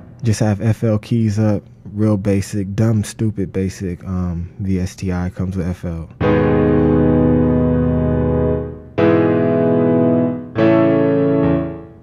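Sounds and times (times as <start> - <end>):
piano chords: 0.0 - 0.4, 6.2 - 12.0.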